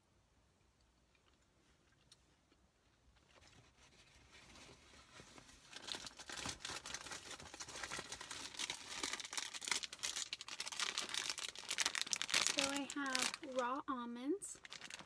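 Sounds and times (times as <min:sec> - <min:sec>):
bag packaging crinkling: 0:05.6 - 0:15.0.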